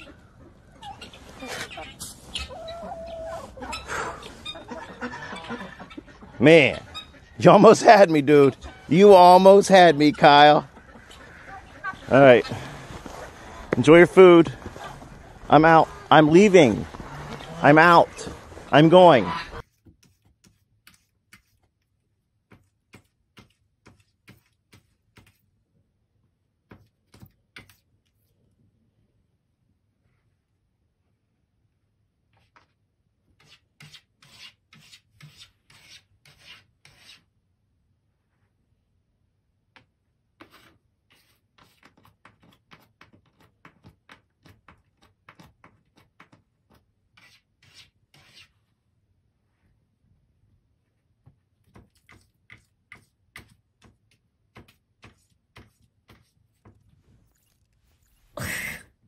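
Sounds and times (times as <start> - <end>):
cat scratching in litter box: 40.4 - 46.4.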